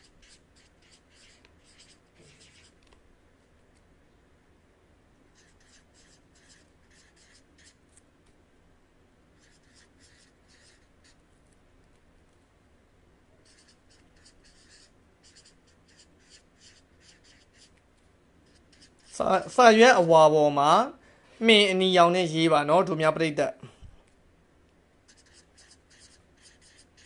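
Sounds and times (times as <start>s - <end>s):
felt marker scratching paper: 0.0s - 2.8s, 5.4s - 7.8s, 9.4s - 11.2s, 13.4s - 17.8s, 18.4s - 20.1s, 25.1s - 27.0s.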